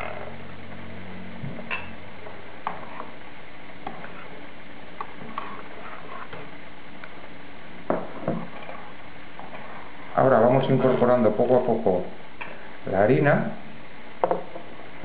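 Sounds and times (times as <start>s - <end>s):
steady background hiss: 0.0s - 15.0s
whisk stirring batter: 2.6s - 3.2s, 5.0s - 6.6s, 8.1s - 10.3s.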